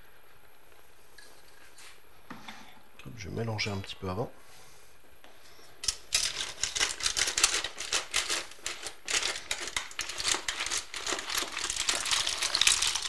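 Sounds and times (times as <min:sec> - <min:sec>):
mussel shells clattering in a pot: 0:05.8 - 0:13.0.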